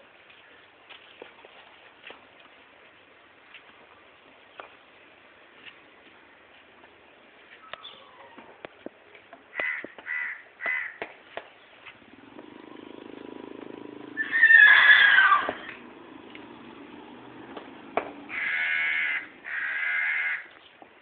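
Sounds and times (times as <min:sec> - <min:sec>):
horse whinnying: 0:14.0 - 0:16.1.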